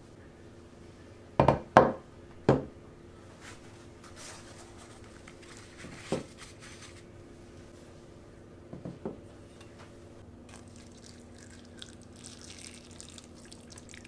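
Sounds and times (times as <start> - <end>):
kitchen paper rustling: 3.4 - 7.1.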